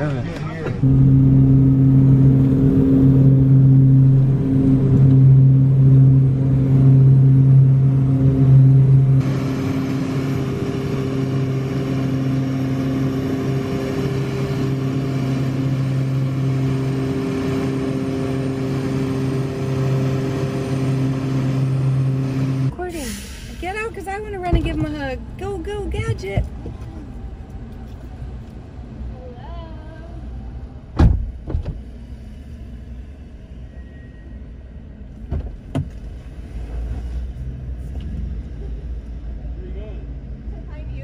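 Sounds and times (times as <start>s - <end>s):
propeller aircraft engine drone: 0.0s - 22.8s.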